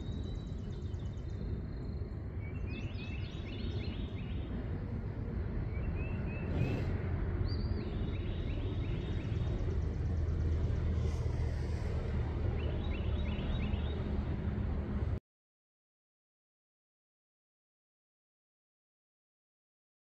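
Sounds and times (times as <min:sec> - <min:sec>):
bird chirping: 0:00.0 - 0:04.5, 0:05.6 - 0:11.0, 0:12.5 - 0:14.2
low hum: 0:00.0 - 0:15.2
low rumble: 0:04.5 - 0:12.6.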